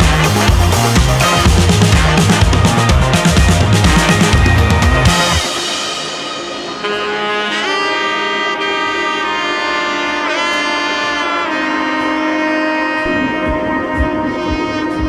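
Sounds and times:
low steady beat: 0:00.0 - 0:07.8, 0:11.4 - 0:15.0
sliding lead melody: 0:00.0 - 0:15.0.

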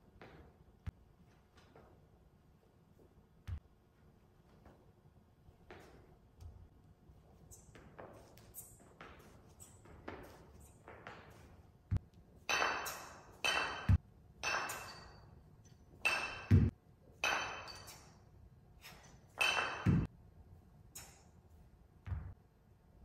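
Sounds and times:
kettlebells clinking: 0:12.4 - 0:20.1.

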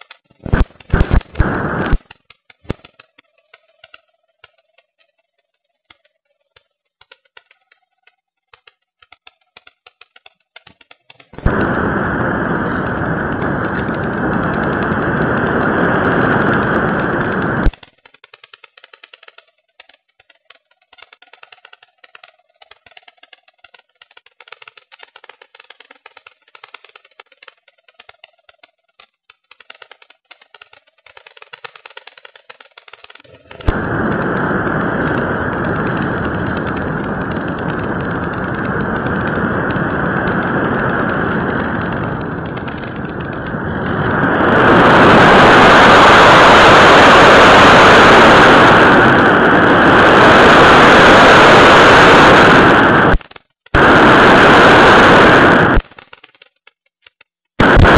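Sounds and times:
faint crackling: 0:00.0 - 0:57.9
motor and airflow rushing: 0:00.4 - 0:02.0, 0:11.4 - 0:17.8, 0:33.0 - 0:53.2, 0:53.8 - 0:55.8.

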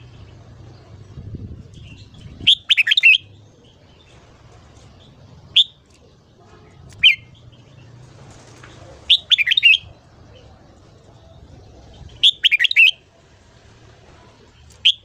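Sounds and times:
bird warbling: 0:02.4 - 0:03.3, 0:07.0 - 0:07.3, 0:09.1 - 0:10.0, 0:12.2 - 0:13.0
sharp bird notes: 0:02.4 - 0:03.3, 0:09.1 - 0:09.9, 0:12.2 - 0:13.0.

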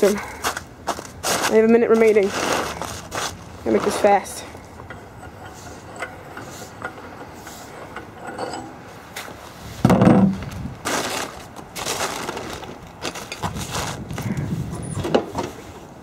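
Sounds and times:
loud thump: 0:09.8 - 0:10.4
handling clicks and rustling: 0:10.4 - 0:15.6.

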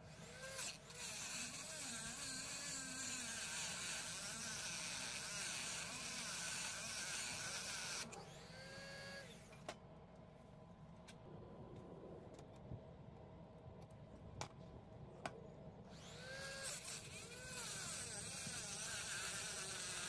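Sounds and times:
rotary tool motor whining: 0:00.0 - 0:09.7, 0:15.9 - 0:20.0
cut-off disc grinding metal: 0:00.2 - 0:09.5, 0:15.9 - 0:20.0.

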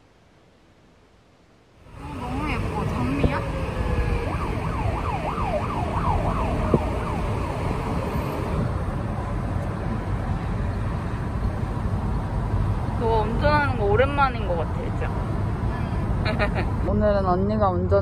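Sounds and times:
car road and engine noise: 0:01.2 - 0:18.0
siren wailing: 0:01.9 - 0:08.7.

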